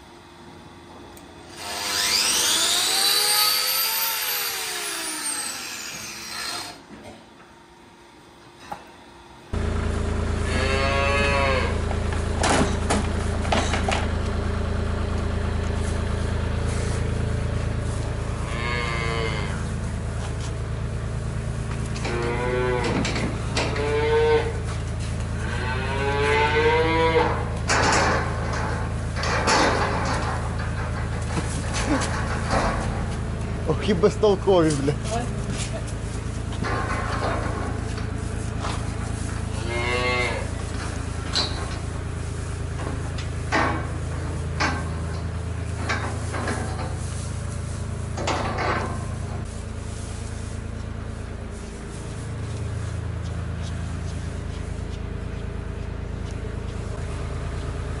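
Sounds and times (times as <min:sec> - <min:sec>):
steady low hum: 0:00.0 - 0:58.0
cow mooing: 0:10.4 - 0:11.9, 0:18.3 - 0:19.7, 0:22.0 - 0:24.7, 0:25.4 - 0:27.5, 0:39.5 - 0:40.6.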